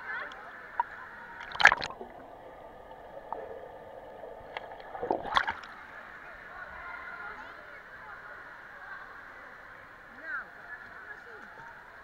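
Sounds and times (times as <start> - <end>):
pool water splashing and sloshing: 0.0 - 12.0
bubbling hiss: 0.7 - 6.6
loud splashes: 1.4 - 2.5, 4.5 - 5.7.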